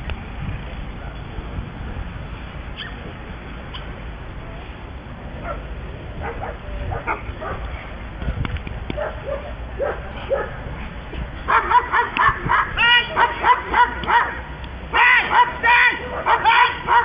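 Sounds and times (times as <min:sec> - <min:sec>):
dog barking: 0:06.2 - 0:07.6, 0:09.0 - 0:10.6, 0:11.5 - 0:14.4, 0:15.3 - 0:17.0
dog whining yelps: 0:15.1 - 0:17.0.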